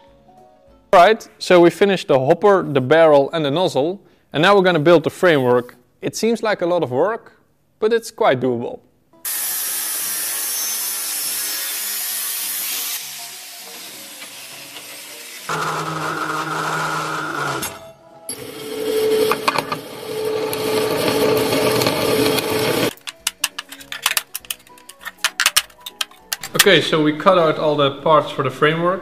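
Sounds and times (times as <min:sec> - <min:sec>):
circular saw cutting steel: 0:09.3 - 0:22.9
angle grinder cutting steel tube: 0:09.3 - 0:23.0
metal tube pieces clinking: 0:22.9 - 0:26.7.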